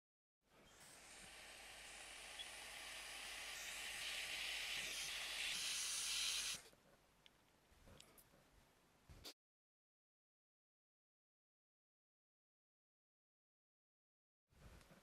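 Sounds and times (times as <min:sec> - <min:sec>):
hot air gun hissing: 0:00.7 - 0:06.6.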